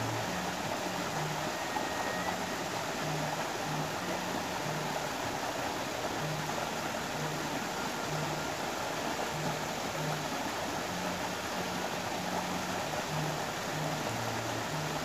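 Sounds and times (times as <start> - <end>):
stream pouring over rocks: 0.0 - 15.0.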